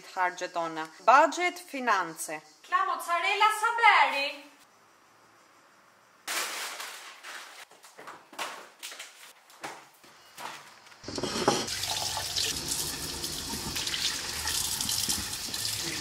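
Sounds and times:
rustling and handling noises: 6.3 - 11.7
tap water running into sink: 11.6 - 16.0
vegetables rinsed by hand: 11.7 - 16.0.

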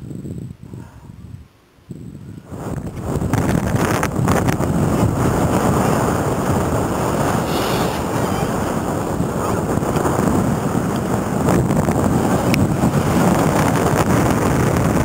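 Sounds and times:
wind rushing over microphone: 0.0 - 15.0
skis hissing over snow: 7.0 - 8.8.

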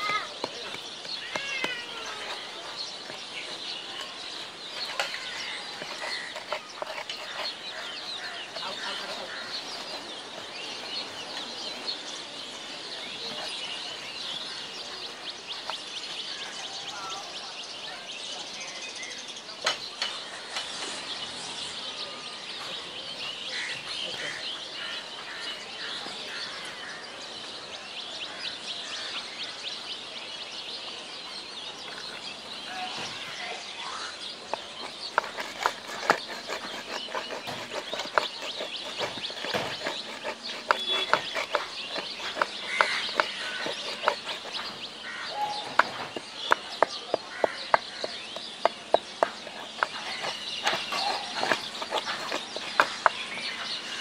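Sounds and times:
stone pestle grinding seeds: 0.0 - 12.0, 34.0 - 54.0
birds chirping: 0.0 - 54.0
pestle knocking in bowl: 34.5 - 44.9, 45.6 - 53.3.

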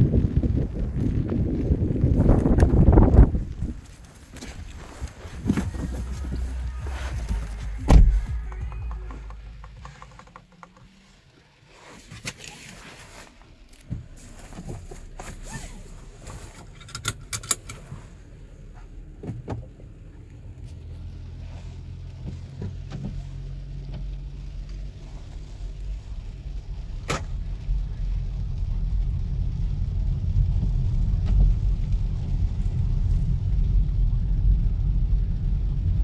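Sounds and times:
steady low hum: 0.0 - 11.6
clicks and knocks of handling: 7.2 - 11.0.

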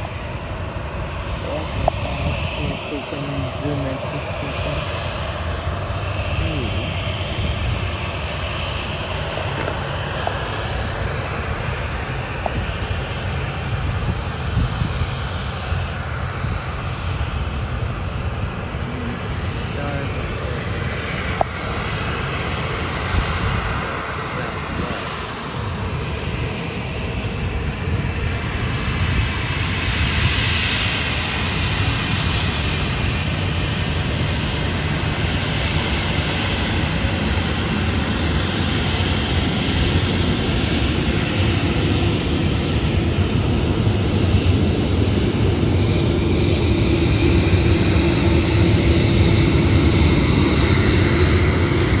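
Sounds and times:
jet engines rushing: 0.0 - 52.0.

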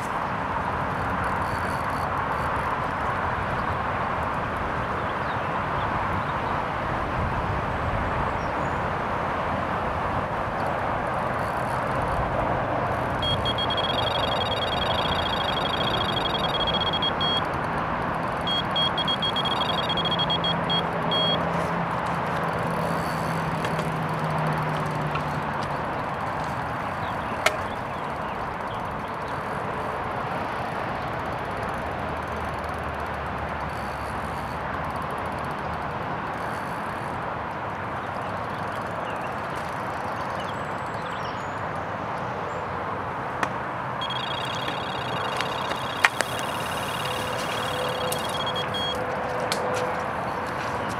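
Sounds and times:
bite alarm rapid high beeps: 1.4 - 2.5, 11.4 - 12.1, 12.9 - 21.5, 22.6 - 24.2, 44.0 - 49.0.

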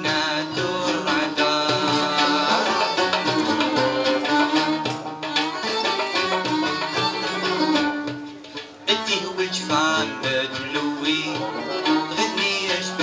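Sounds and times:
hand-played frame drum: 0.0 - 13.0
plucked lute: 0.0 - 13.0
bowed violin melody: 1.0 - 9.1, 11.0 - 13.0.

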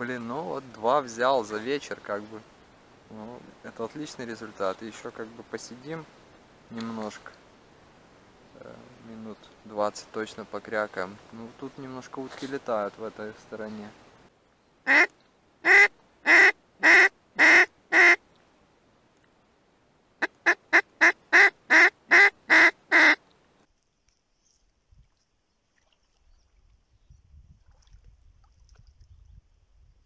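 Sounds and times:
duck call quacks: 14.9 - 18.2, 20.2 - 23.2.

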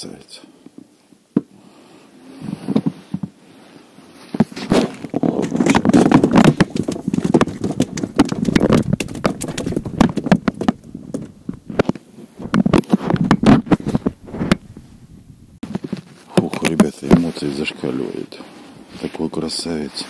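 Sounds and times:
knocks and thumps in inflatable boat: 4.4 - 11.7, 12.4 - 14.7.

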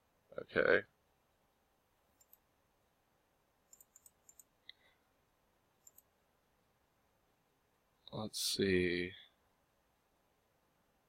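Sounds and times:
computer mouse clicks: 2.2 - 2.4, 3.7 - 4.8, 5.8 - 6.1.

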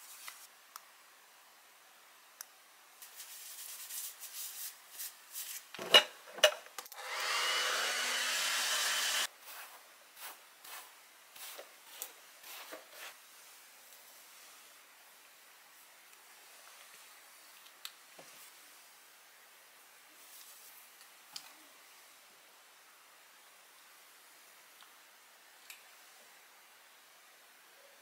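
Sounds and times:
rubbing and handling sounds: 0.0 - 0.5, 3.0 - 5.7, 9.4 - 14.8
hair dryer blowing: 7.0 - 9.3.

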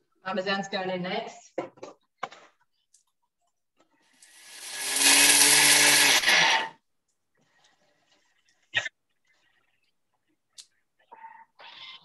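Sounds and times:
food processor blade running: 4.3 - 6.8.

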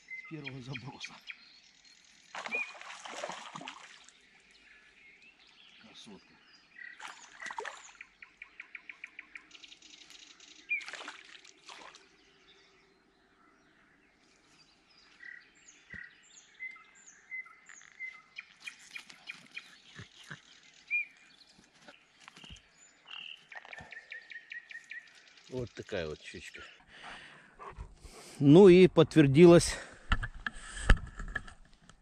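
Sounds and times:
songbirds singing and chirping: 0.0 - 32.0
water splashes: 2.2 - 4.6, 7.0 - 8.1, 10.7 - 12.3.

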